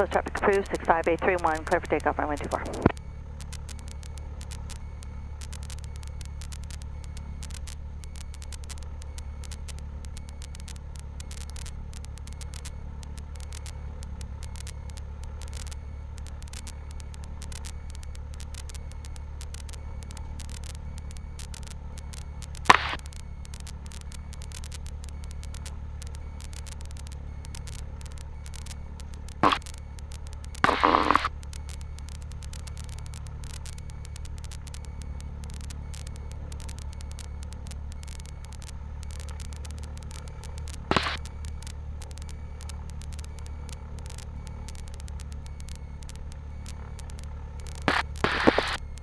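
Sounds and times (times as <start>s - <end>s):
sharp intercom clicks: 0.0s - 4.7s, 21.5s - 49.0s
aircraft engine idling hum: 0.0s - 49.0s
crackle: 0.0s - 49.0s
faint ticking static: 0.0s - 49.0s.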